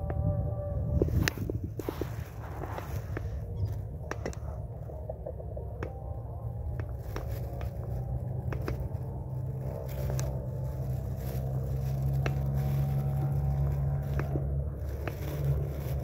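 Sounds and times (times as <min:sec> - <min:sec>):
engine humming: 0:00.0 - 0:16.0.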